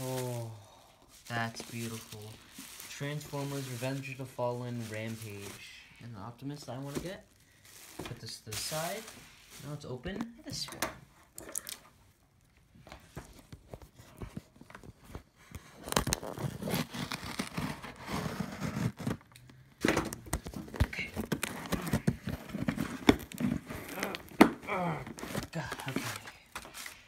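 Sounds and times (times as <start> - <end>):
cardboard crinkling and scraping: 0.0 - 5.8, 6.4 - 10.3, 12.8 - 27.0
packing tape tearing: 14.8 - 27.0.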